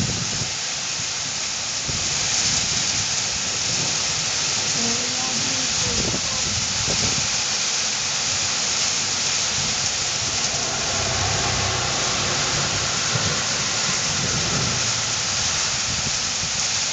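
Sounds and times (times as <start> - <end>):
heavy rain pelting street: 0.0 - 16.9
vehicle driving through rain: 0.0 - 16.9
low rumble: 9.2 - 16.9.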